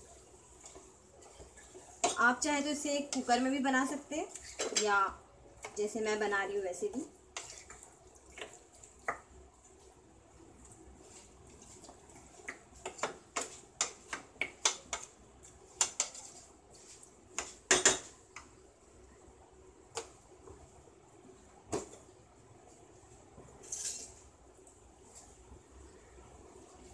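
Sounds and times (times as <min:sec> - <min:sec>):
spoon scraping a pan: 0:00.6 - 0:05.0, 0:07.3 - 0:08.6, 0:15.7 - 0:18.1.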